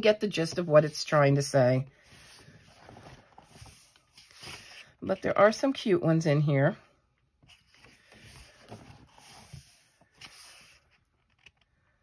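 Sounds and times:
paper pages being turned: 0:02.2 - 0:04.9, 0:07.5 - 0:11.6.

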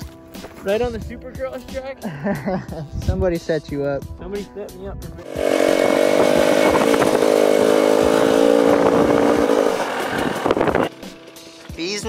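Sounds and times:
two-stroke motorbike engine revving: 0:05.2 - 0:11.2.

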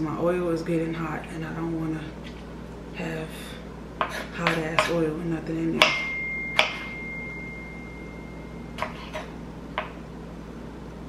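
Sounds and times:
high steady tone: 0:05.8 - 0:09.0.

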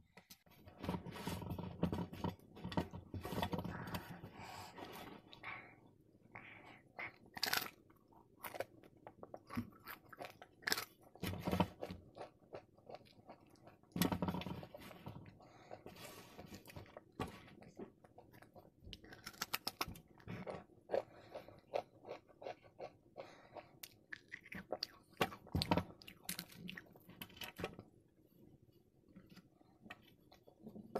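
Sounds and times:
crunchy bites and chewing: 0:07.2 - 0:14.0, 0:18.4 - 0:23.0.

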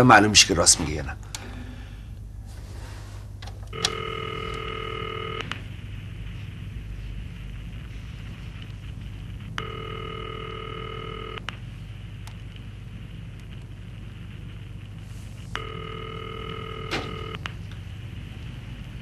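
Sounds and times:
telephone ringback tone: 0:03.7 - 0:05.5, 0:09.6 - 0:11.4, 0:15.6 - 0:17.4.

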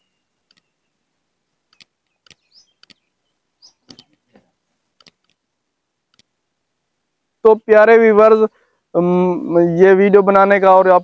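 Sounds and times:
faint clicks and ticks: 0:00.0 - 0:00.7, 0:01.7 - 0:03.1, 0:03.7 - 0:06.4.

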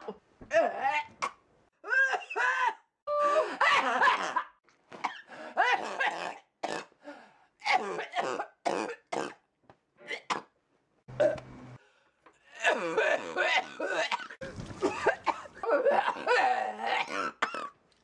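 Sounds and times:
groan-like vocal noises: 0:00.4 - 0:01.2, 0:12.4 - 0:14.4, 0:15.6 - 0:17.4.

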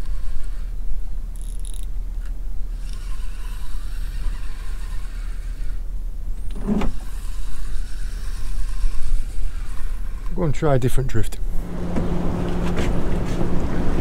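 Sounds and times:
fishing reel whirring: 0:00.0 - 0:01.9, 0:02.7 - 0:10.4.

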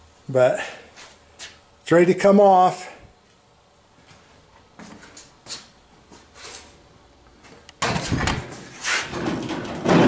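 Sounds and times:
sheet metal clattering: 0:07.8 - 0:10.0.

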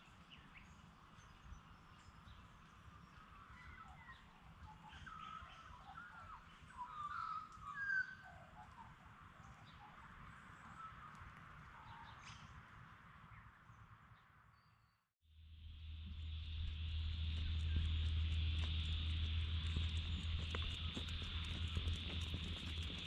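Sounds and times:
low rumble: 0:15.3 - 0:23.0.

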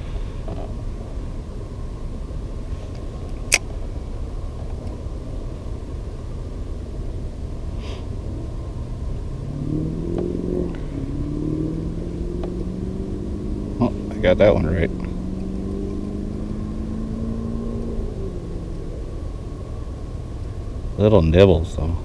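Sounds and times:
engine humming: 0:00.0 - 0:22.0
steady low rumble: 0:00.0 - 0:22.0.

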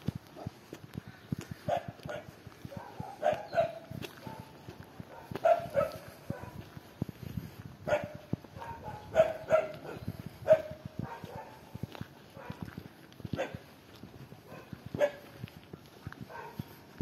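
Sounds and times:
dog barking: 0:00.3 - 0:00.6, 0:01.6 - 0:06.7, 0:07.8 - 0:13.7, 0:14.4 - 0:15.4, 0:16.3 - 0:16.7.

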